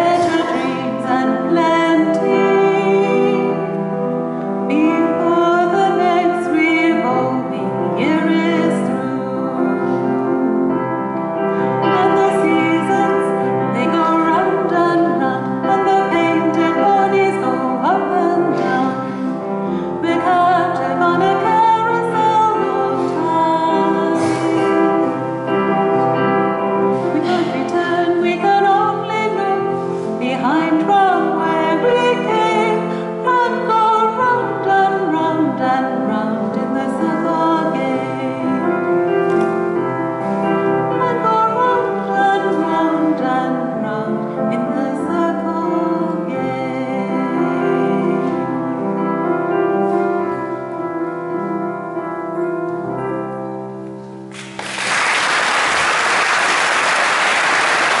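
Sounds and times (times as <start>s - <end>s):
woman singing a slow song: 0.0s - 3.9s, 4.7s - 10.5s, 11.7s - 19.3s, 19.9s - 25.2s, 27.0s - 38.9s, 40.9s - 48.6s
audience applause: 54.3s - 58.0s.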